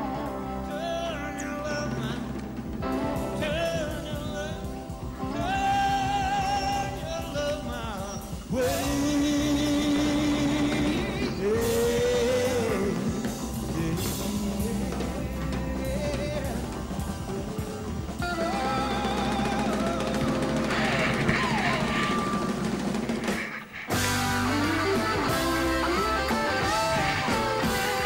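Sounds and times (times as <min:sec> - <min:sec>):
song with singing voice: 0:00.0 - 0:28.0.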